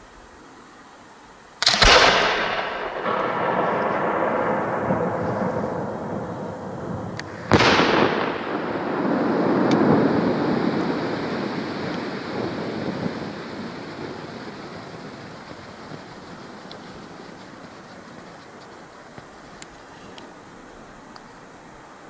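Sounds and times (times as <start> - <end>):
long rumbling echo: 1.6 - 18.4
firework shell bang: 7.2 - 10.0.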